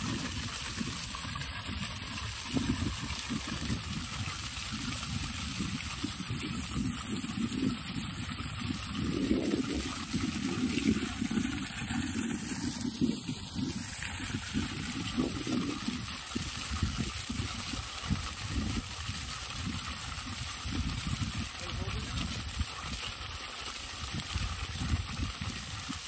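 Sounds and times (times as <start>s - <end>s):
water jetting and splashing: 0.0s - 26.0s.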